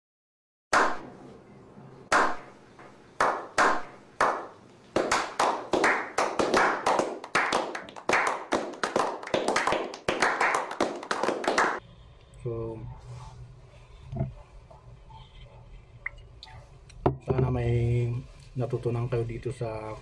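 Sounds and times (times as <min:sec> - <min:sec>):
people slow-clapping: 0:00.8 - 0:01.0, 0:02.1 - 0:02.5, 0:03.2 - 0:11.8.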